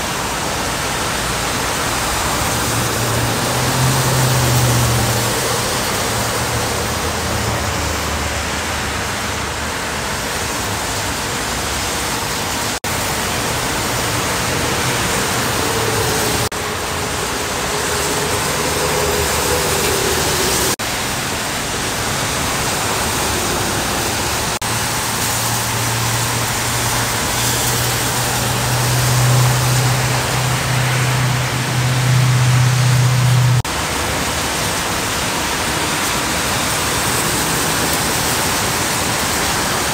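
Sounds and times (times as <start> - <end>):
rain falling: 0.0 - 39.9
tyres spraying water: 0.0 - 39.9
truck engine drone: 0.1 - 39.9.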